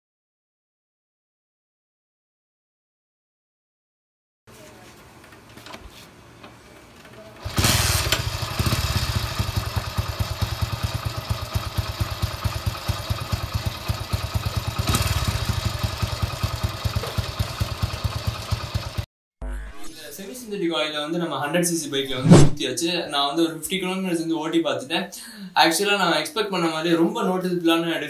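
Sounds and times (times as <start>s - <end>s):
motorcycle engine idling: 7.4s - 19.0s.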